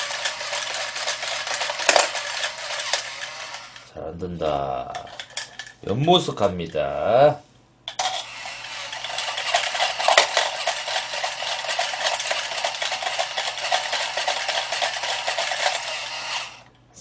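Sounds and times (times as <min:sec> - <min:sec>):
toy coin bank rattling chewing: 0:00.0 - 0:03.8, 0:07.9 - 0:16.6.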